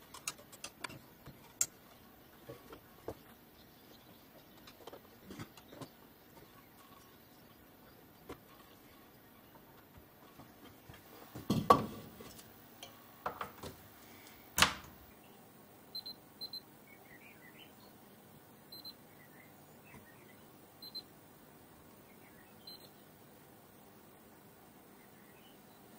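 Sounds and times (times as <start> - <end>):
handling knocks and clicks: 0.0 - 3.4, 4.3 - 7.1, 9.8 - 13.8.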